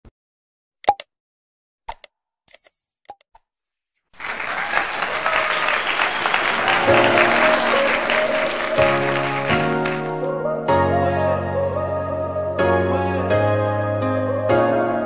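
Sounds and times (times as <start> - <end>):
crowd applause: 4.2 - 10.3
soft music with held chords: 6.8 - 15.0.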